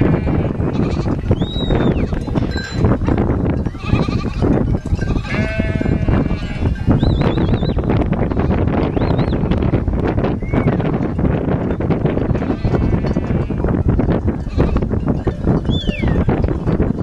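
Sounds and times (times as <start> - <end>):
goats bleating: 0.0 - 1.3, 3.7 - 6.9
goat bells clanking: 0.2 - 9.4, 10.4 - 17.0.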